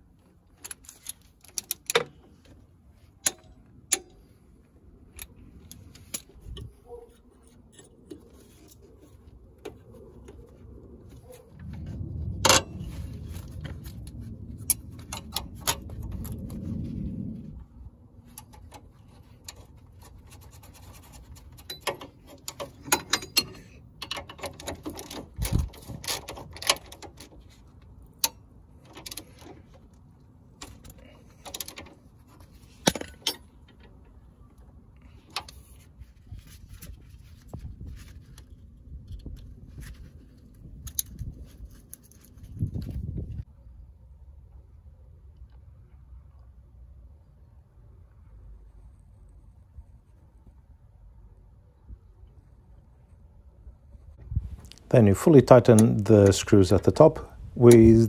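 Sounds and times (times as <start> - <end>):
low rumble: 9.4 - 19.0.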